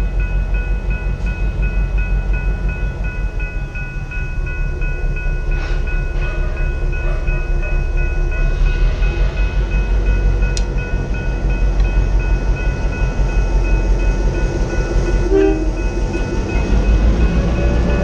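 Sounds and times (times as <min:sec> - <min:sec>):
crossing bell ringing: 0:00.0 - 0:18.0
diesel locomotive rumbling: 0:00.0 - 0:18.0
train horn toot: 0:05.6 - 0:07.6, 0:15.2 - 0:15.9.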